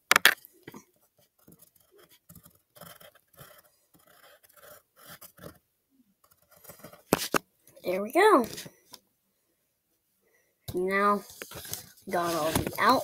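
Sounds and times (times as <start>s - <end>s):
pencil scratching on paper: 1.1s - 5.6s, 6.2s - 7.4s, 11.2s - 13.0s.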